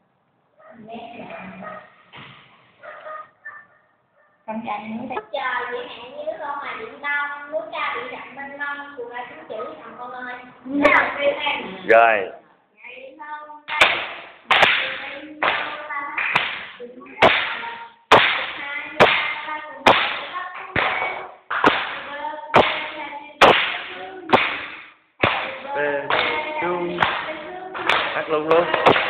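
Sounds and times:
hands clapping: 13.7 - 19.3, 19.9 - 29.0
people singing together: 21.8 - 29.0.

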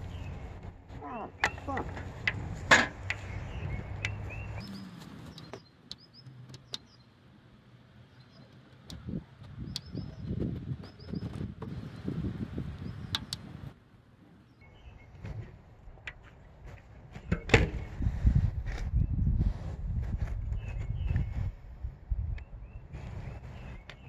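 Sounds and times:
small birds chirping: 0.0 - 7.3, 7.9 - 13.7, 14.3 - 15.5, 20.4 - 24.0.

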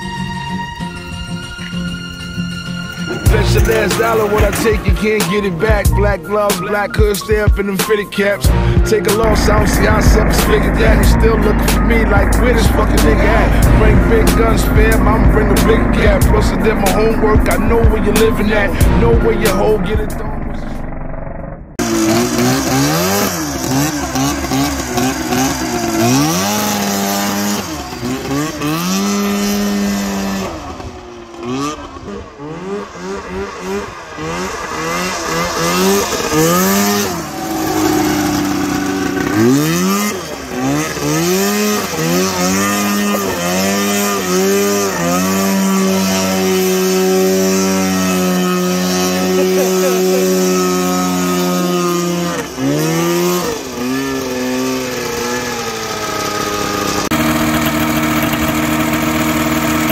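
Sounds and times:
two-stroke engine revving: 0.0 - 59.9.

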